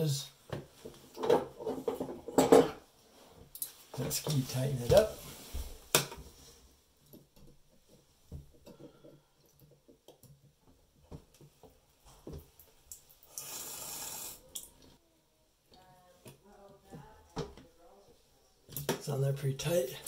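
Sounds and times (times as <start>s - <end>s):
water trickling from faucet: 12.4s - 15.0s
hiss: 13.3s - 14.6s.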